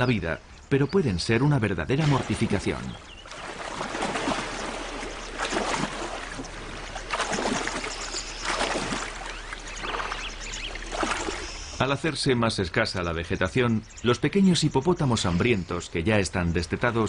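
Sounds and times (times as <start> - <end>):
water sloshing and splashing: 1.9 - 11.8.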